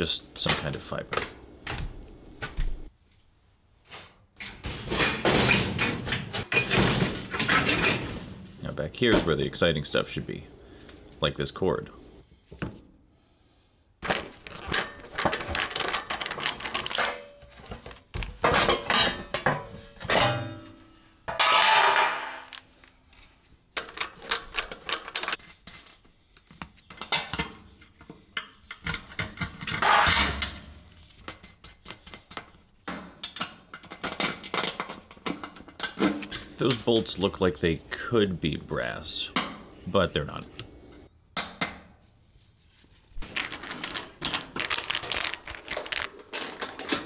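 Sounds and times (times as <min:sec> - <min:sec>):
metal tools clicking and rattling: 0:14.0 - 0:20.5, 0:23.8 - 0:26.0, 0:33.2 - 0:37.1, 0:43.2 - 0:47.0.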